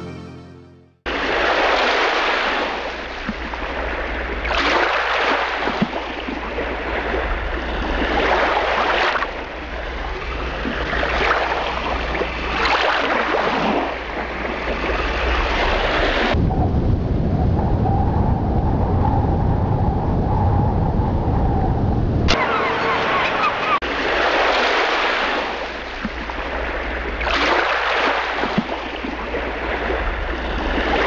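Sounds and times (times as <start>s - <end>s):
sea waves breaking on shore: 1.1s - 16.4s, 22.3s - 31.0s
deep steady rumble: 13.8s - 23.8s.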